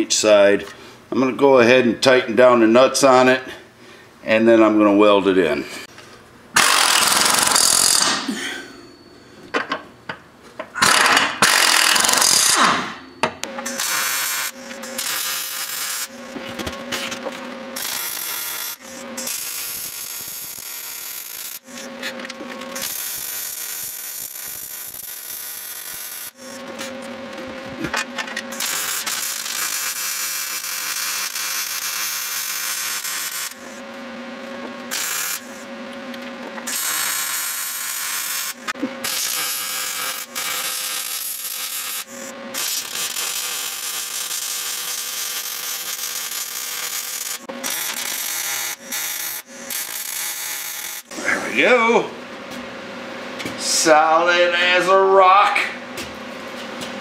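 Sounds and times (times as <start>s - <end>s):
arc welding crackling sizzle: 13.6s - 33.8s, 34.7s - 51.6s.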